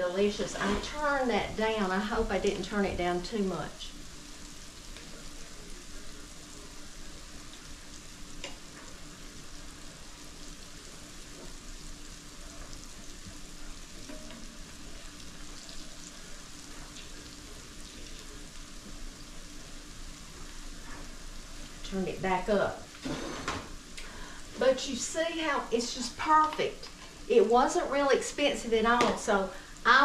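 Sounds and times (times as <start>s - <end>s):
food sizzling in oil: 0.0s - 30.0s.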